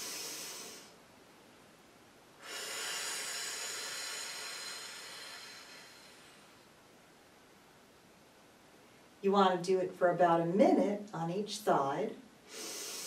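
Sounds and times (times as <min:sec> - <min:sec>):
woman breathing deeply: 0:00.0 - 0:01.0, 0:02.4 - 0:06.8, 0:12.4 - 0:13.0.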